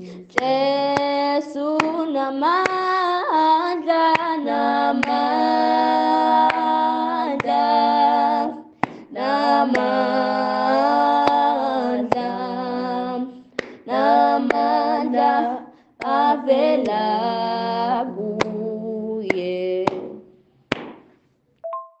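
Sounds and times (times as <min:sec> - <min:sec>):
woman singing unaccompanied: 0:00.0 - 0:20.3
two-note electronic beep: 0:21.6 - 0:22.0.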